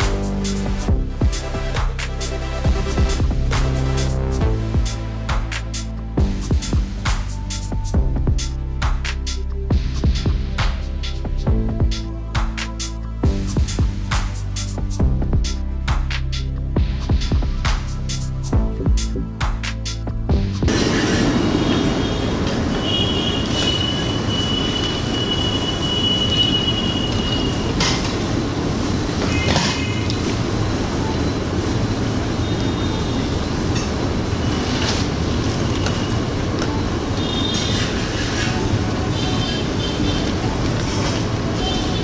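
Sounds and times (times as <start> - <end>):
high metallic squeal: 22.8 - 27.8.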